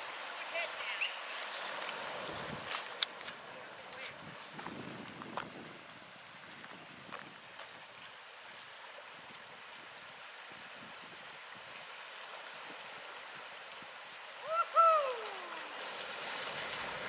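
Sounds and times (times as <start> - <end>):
stream running over rocks: 0.0 - 17.0
loud call sliding down: 14.4 - 15.8.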